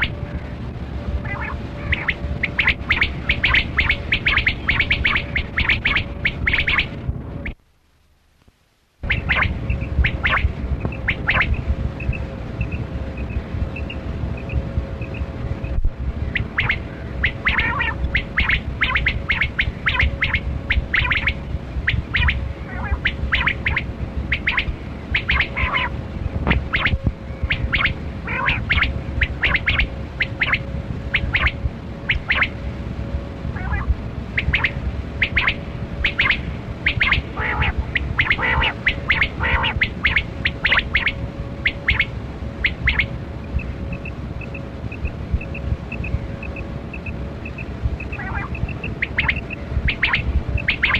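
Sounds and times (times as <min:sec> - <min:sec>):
quail calling sharp notes: 0:00.0 - 0:00.2, 0:01.2 - 0:07.6, 0:09.0 - 0:15.3, 0:16.3 - 0:32.6, 0:33.6 - 0:50.9
steady low hum: 0:00.0 - 0:50.9.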